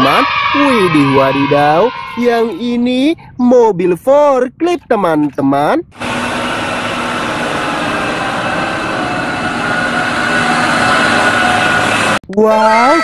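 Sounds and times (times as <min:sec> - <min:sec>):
forklift engine running: 0:05.9 - 0:12.2.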